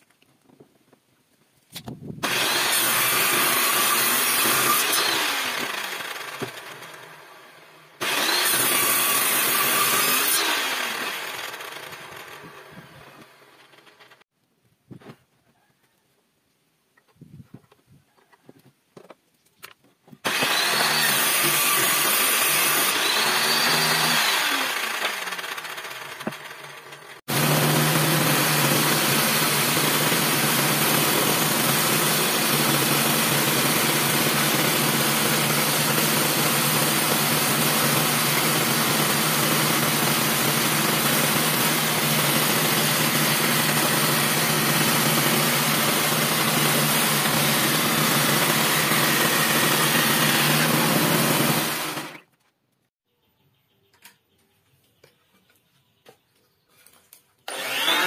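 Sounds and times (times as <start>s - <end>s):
band saw cutting wood: 2.2s - 14.2s, 20.2s - 52.3s, 57.5s - 58.0s
table saw running: 2.2s - 14.2s, 20.2s - 52.3s, 57.5s - 58.0s.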